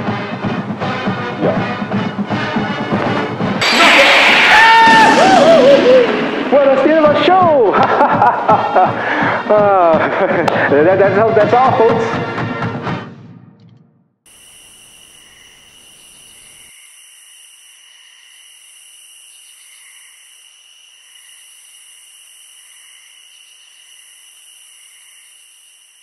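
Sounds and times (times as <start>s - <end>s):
low rumble: 3.4s - 8.8s
high-pitched insect chorus: 14.3s - 26.0s.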